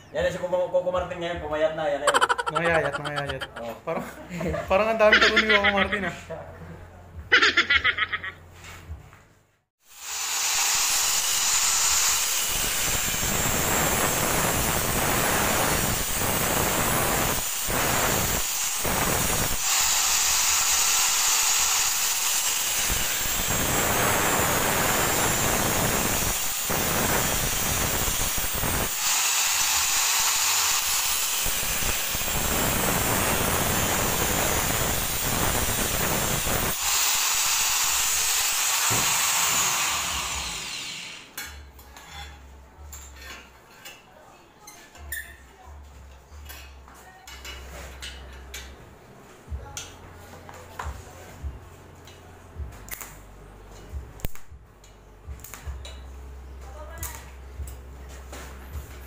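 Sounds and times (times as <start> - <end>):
angle grinder on steel: 10.0 - 41.4.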